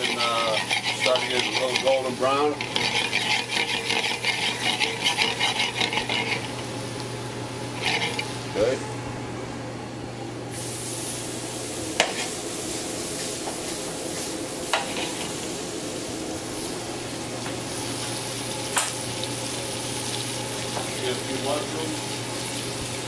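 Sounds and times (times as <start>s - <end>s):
vegetables sizzling in a skillet: 10.6s - 16.7s, 17.6s - 23.0s.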